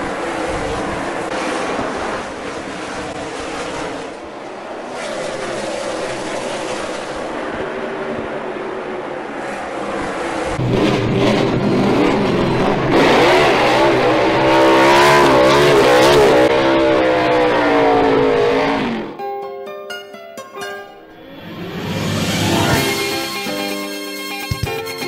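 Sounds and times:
race car engine revving: 9.6 - 19.2, 21.4 - 23.4
music with plucked strings: 19.2 - 21.2.

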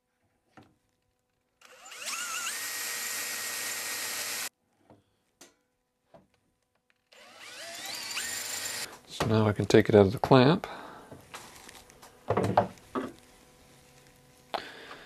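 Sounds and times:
power drill boring wood: 1.6 - 4.5, 7.1 - 8.9.

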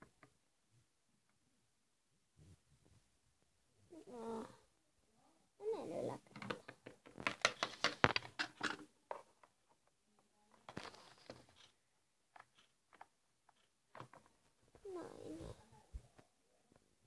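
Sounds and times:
plastic toys knocking together: 6.3 - 9.3.

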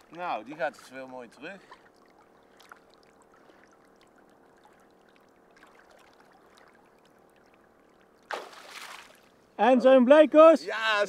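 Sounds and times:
water trickling and lapping: 0.0 - 9.6
water splash: 8.2 - 9.3.

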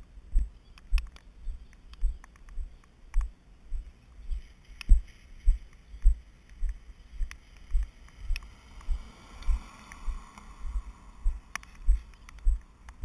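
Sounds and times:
soft hiss: 0.0 - 13.0
low thumps on camera: 0.3 - 3.9.

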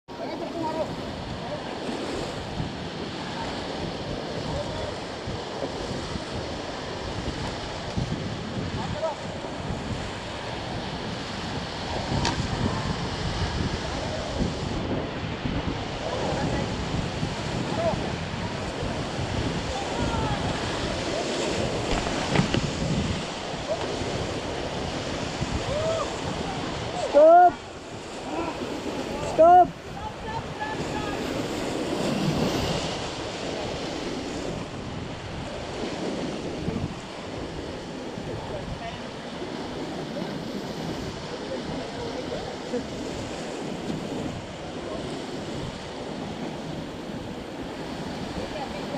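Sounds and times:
rushing whitewater: 0.1 - 48.9
wind buffeting microphone: 0.1 - 48.9
whitewater rapids rushing: 17.6 - 34.7.

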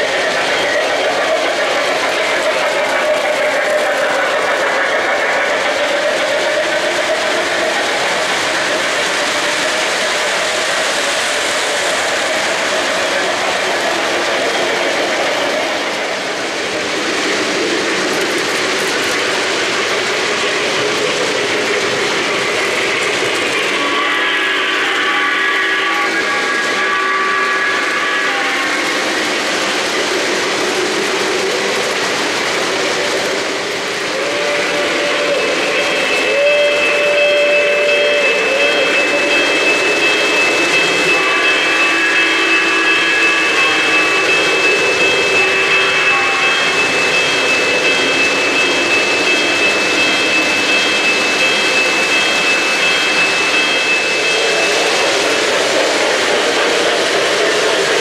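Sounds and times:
model trains rolling on metal track: 0.0 - 58.0
steam whistle: 22.4 - 29.4, 34.1 - 50.7.

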